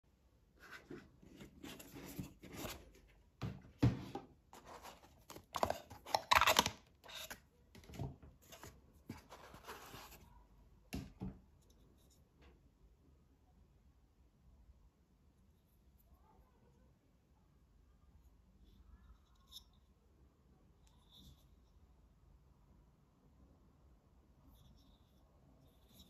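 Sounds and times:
paper and card rustling: 4.6 - 10.2.

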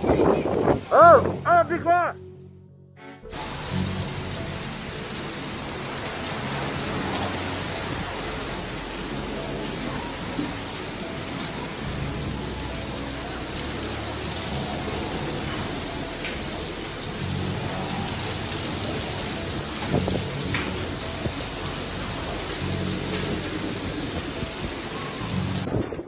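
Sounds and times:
strong wind blowing: 0.0 - 2.1, 25.6 - 26.0.

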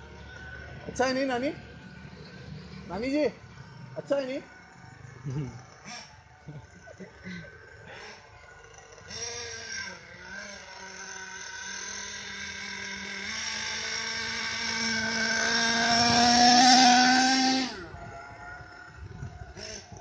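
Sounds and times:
small nitro engine running high: 0.0 - 20.0.

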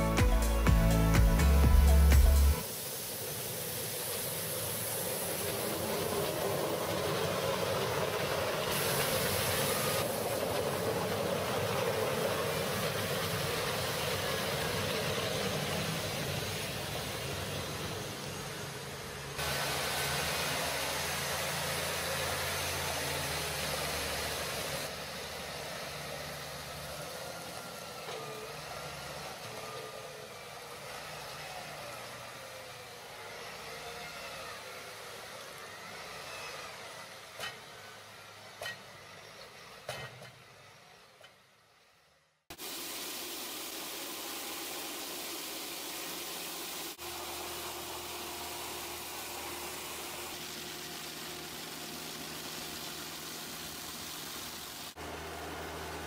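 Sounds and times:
rotating sweeper brushes hissing: 0.0 - 38.6, 42.5 - 56.0
street sweeper engines running: 0.0 - 56.0.

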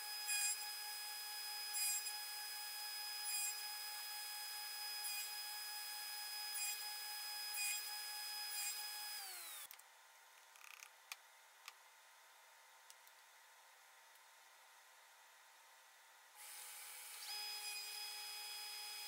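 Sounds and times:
table saw whining: 6.3 - 9.7, 16.4 - 19.0.

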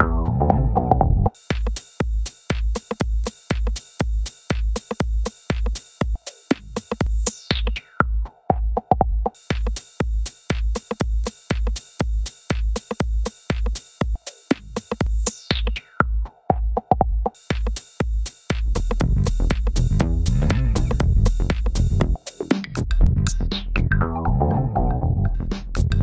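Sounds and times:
electronic dance music: 17.5 - 22.8.

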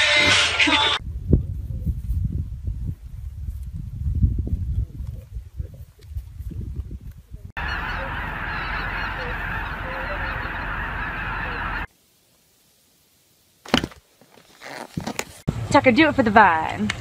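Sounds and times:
geese honking: 7.6 - 11.9.

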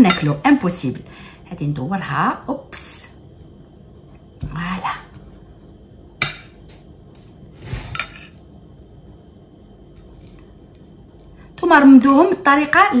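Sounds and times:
spoon scraping glass plate: 7.7 - 8.4.

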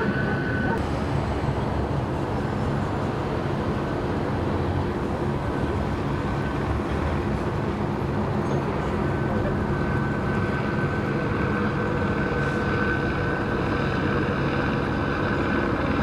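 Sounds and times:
freeway traffic rumble: 0.0 - 16.0.

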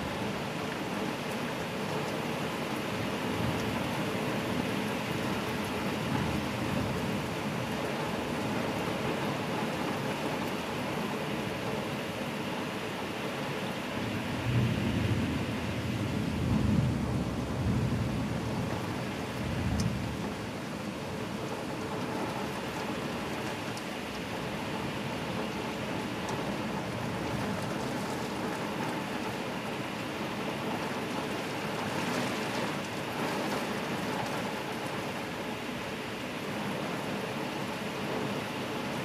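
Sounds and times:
heavy rain on roof: 0.0 - 39.0
low thunder rumble: 14.0 - 22.1.

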